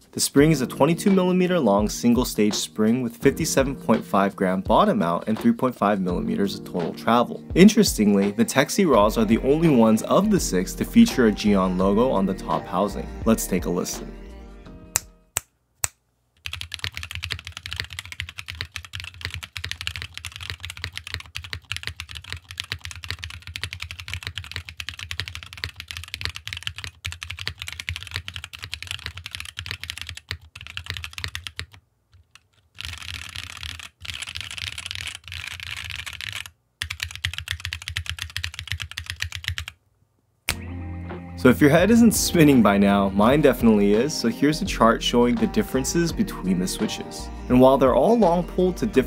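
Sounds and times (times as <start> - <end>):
typing on mechanical keyboard: 16.4 - 39.8.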